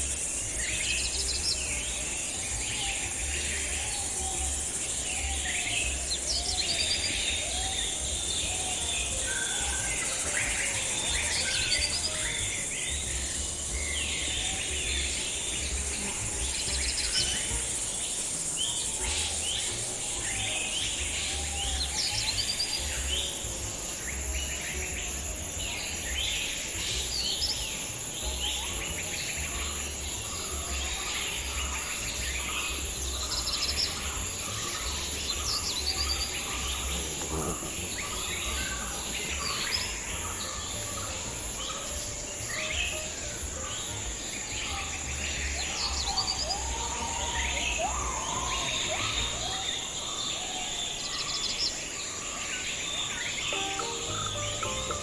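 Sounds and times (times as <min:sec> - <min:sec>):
birds chirping and calling: 0:00.0 - 0:55.0
high-pitched insect drone: 0:00.0 - 0:55.0.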